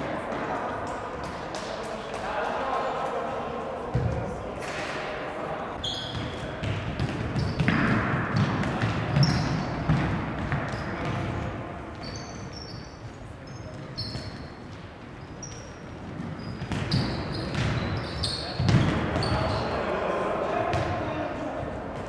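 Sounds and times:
sneakers squeaking on wooden floor: 0:05.8 - 0:08.5, 0:09.1 - 0:11.3, 0:11.9 - 0:19.8.

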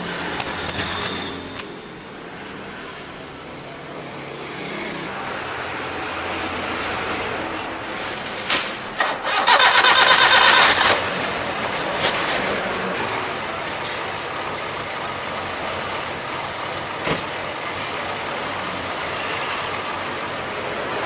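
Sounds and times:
loud fast rattling buzz: 0:09.0 - 0:11.2.

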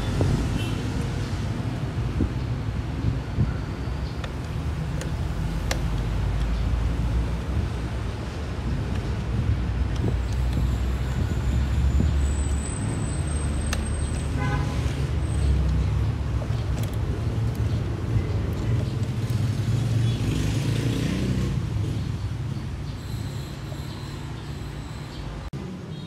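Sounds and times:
outdoor background rumble: 0:00.0 - 0:23.4
light plastic clicks: 0:04.2 - 0:06.6, 0:15.6 - 0:19.4.

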